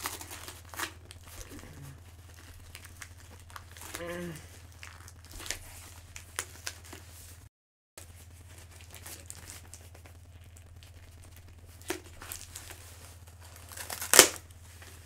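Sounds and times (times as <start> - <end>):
low electrical hum: 0.0 - 15.0
packaging rustling and tearing: 0.0 - 15.0.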